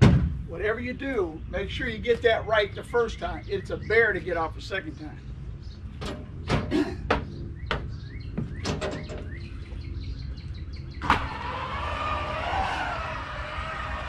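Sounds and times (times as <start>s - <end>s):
footsteps on metal steps: 5.9s - 9.9s
electric awning motor whining: 9.4s - 14.0s.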